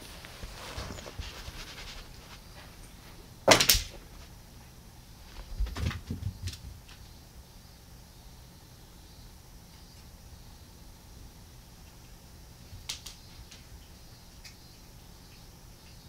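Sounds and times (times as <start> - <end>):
short rustle: 0.0 - 4.4
soft thuds of paws: 5.2 - 7.0
cat thumping on carpet: 5.3 - 7.0.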